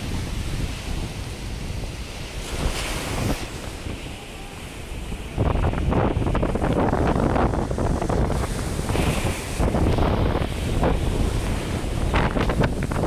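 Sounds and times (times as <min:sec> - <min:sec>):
sea surf crashing: 0:00.0 - 0:13.0
wind buffeting microphone: 0:00.0 - 0:13.0.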